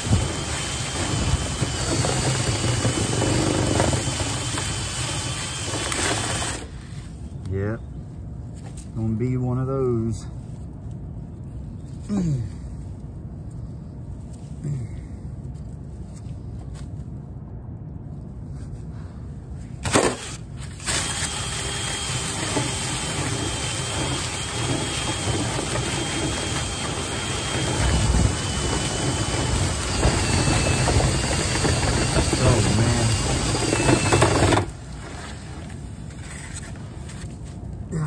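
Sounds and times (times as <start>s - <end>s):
drill spinning a brush in a duct: 0.0s - 6.8s, 19.9s - 37.4s.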